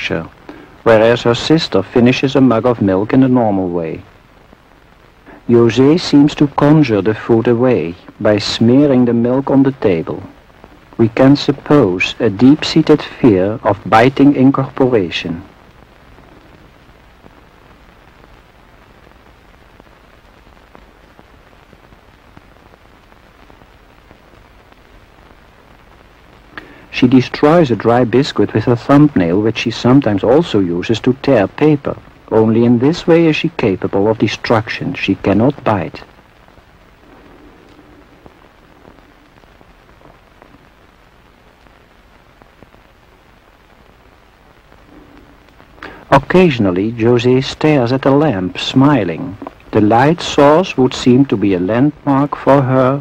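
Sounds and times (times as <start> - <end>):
film soundtrack hiss: 0.0 - 53.0
low hum: 33.6 - 47.4
small clicks and pops: 36.0 - 46.1, 49.3 - 49.8.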